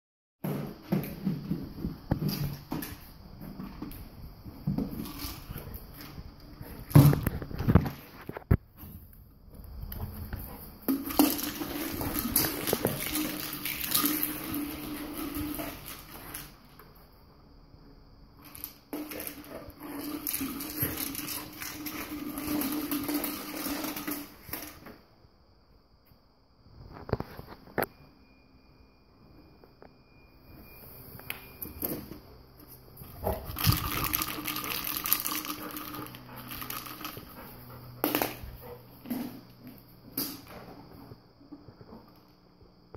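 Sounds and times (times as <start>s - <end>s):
plastic ball rolling on wood floor: 0.5s - 8.9s, 9.8s - 16.8s, 18.4s - 25.0s, 33.0s - 40.3s
treats rattling inside ball: 33.1s - 38.4s.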